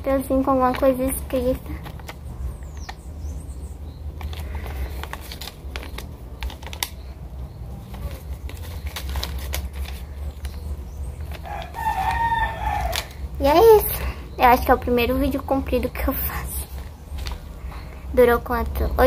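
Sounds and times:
paper rustling and crinkling: 0:00.2 - 0:03.0, 0:04.1 - 0:13.2, 0:16.6 - 0:18.0
rooster crowing: 0:11.3 - 0:13.2.

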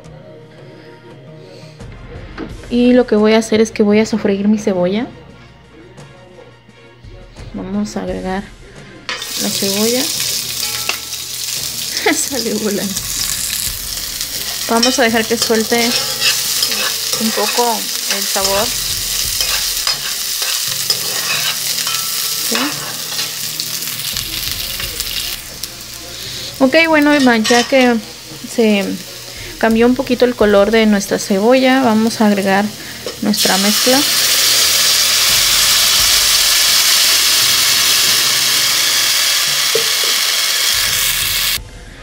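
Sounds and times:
onion sizzling in hot oil: 0:09.1 - 0:41.6
metal spoon scraping pot: 0:14.4 - 0:23.4.

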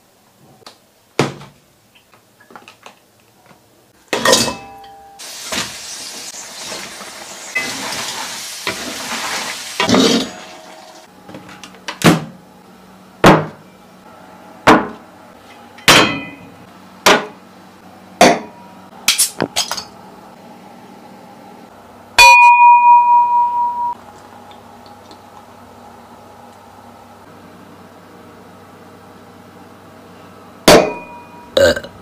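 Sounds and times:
crayfish sizzling in a wok: 0:05.2 - 0:11.1.

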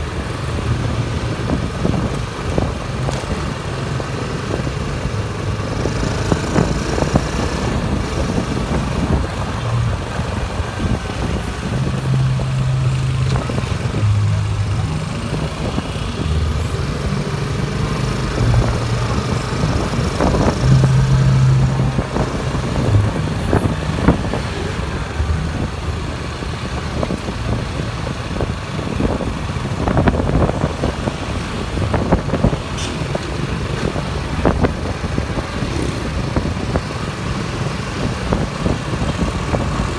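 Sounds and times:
vehicle engine rumble: 0:00.0 - 0:39.9
humming changing pitch: 0:09.1 - 0:26.5.

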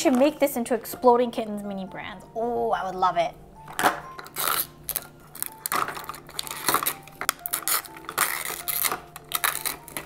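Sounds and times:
plastic film crinkling: 0:00.0 - 0:00.5, 0:03.7 - 0:10.0
faint background music: 0:00.0 - 0:10.0
hard plastic shell handling: 0:03.7 - 0:07.4.

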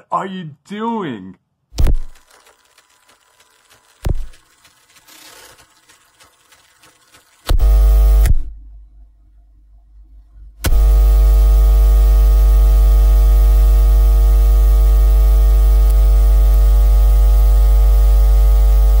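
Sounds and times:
loud electrical hum: 0:06.2 - 0:08.5, 0:10.6 - 0:19.0.

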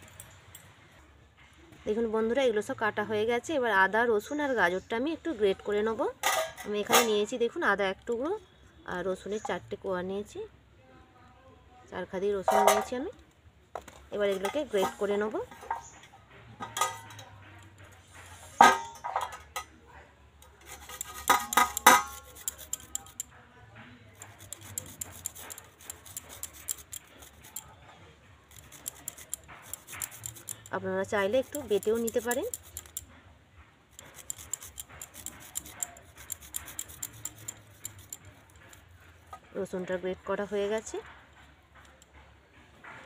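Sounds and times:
metal clink: 0:16.6 - 0:17.8, 0:20.6 - 0:23.3
garlic scraping on metal grater: 0:20.6 - 0:23.3, 0:24.2 - 0:27.7, 0:28.5 - 0:33.1, 0:33.9 - 0:39.7.

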